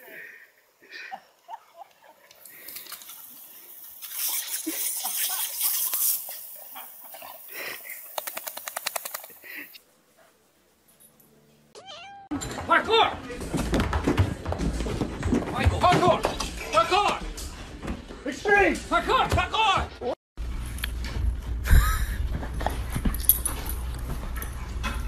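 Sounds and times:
sprinkler hissing and ticking: 2.3s - 9.8s.

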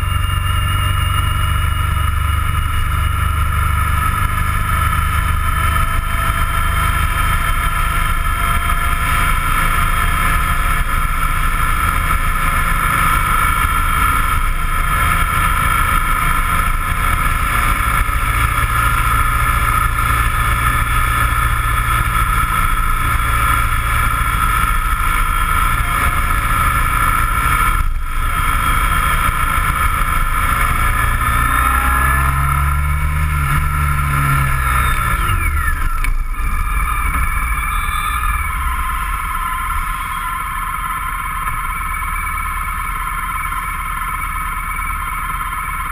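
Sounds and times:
road and wind noise: 0.0s - 45.9s
vehicle engine running: 0.0s - 45.9s.

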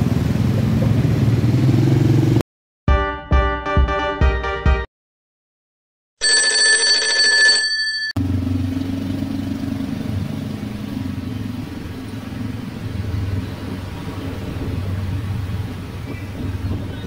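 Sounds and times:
motorbike and scooter traffic: 0.0s - 2.4s, 8.2s - 17.0s.

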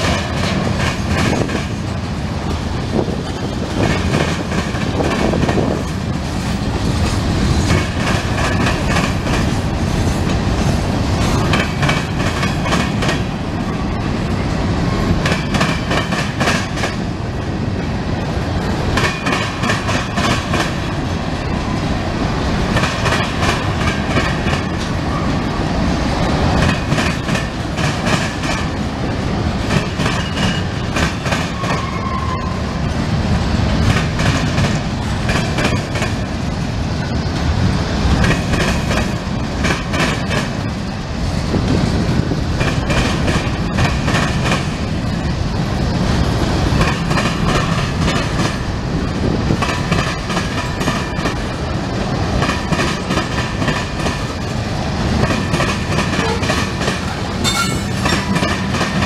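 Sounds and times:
freight train wheels rumbling: 0.0s - 59.0s
wheels and couplers clanking: 55.6s - 59.0s
high squeak: 57.4s - 58.3s.

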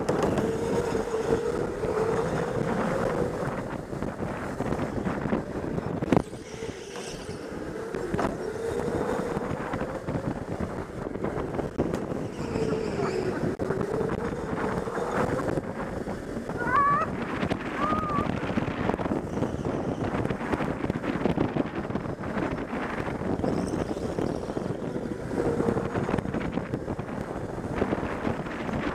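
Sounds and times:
wind rushing over microphone: 0.0s - 28.9s.

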